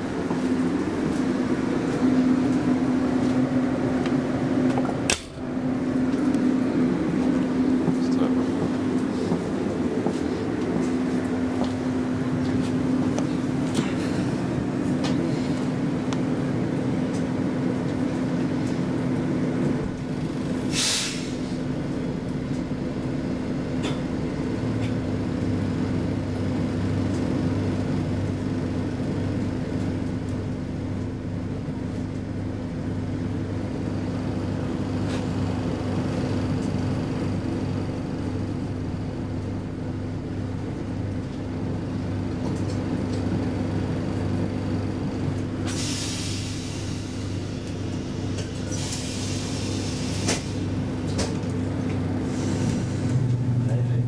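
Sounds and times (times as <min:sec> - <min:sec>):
low steady train hum: 0:00.0 - 0:54.0
railcar cabin noise: 0:00.0 - 0:54.0
loud air hiss: 0:20.7 - 0:21.6, 0:45.6 - 0:47.6, 0:48.6 - 0:50.7.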